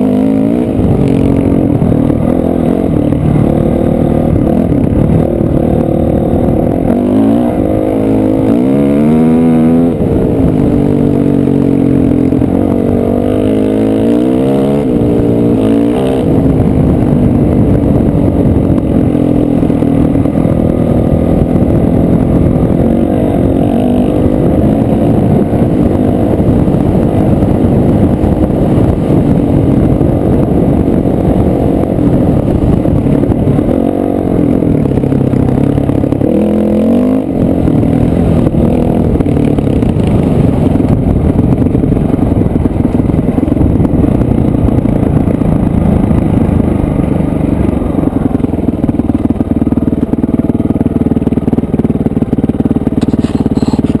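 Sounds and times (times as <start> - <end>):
dirt bike engine revving: 0.0 - 41.6, 52.5 - 54.0.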